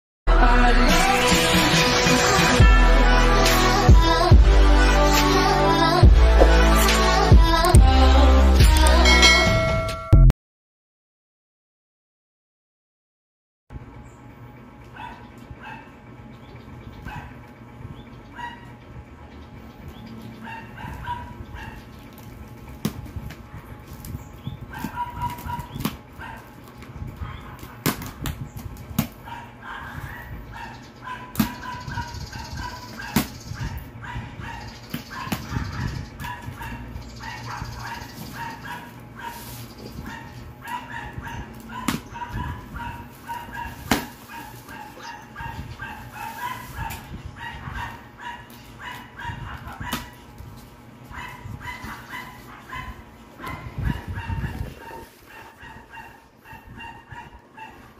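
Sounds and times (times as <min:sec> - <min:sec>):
dog barking and yipping: 0:14.9 - 0:16.0, 0:17.0 - 0:17.4, 0:18.3 - 0:18.8, 0:20.4 - 0:22.0, 0:24.6 - 0:26.6, 0:27.2 - 0:27.8, 0:29.2 - 0:50.3, 0:51.0 - 0:57.9.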